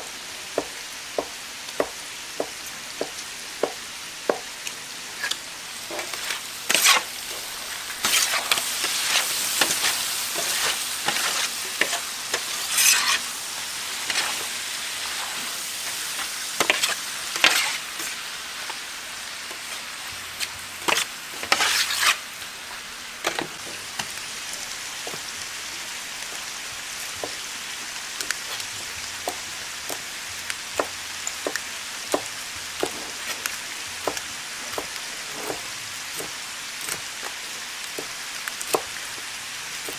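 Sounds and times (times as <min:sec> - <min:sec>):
offal sizzling on a griddle: 0:00.0 - 0:39.9
knife chopping on wooden board: 0:00.6 - 0:04.5, 0:30.8 - 0:33.4, 0:34.0 - 0:35.6, 0:38.7 - 0:38.9
spatula knocking and scraping: 0:05.2 - 0:07.1, 0:08.0 - 0:13.2, 0:16.6 - 0:18.1, 0:20.8 - 0:22.2, 0:32.2 - 0:36.3.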